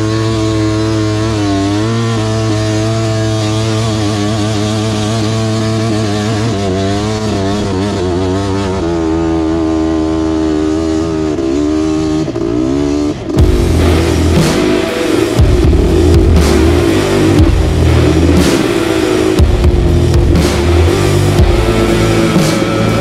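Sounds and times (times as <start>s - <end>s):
two-stroke engine running: 0.0s - 23.0s
loud sudden sound: 13.4s - 23.0s.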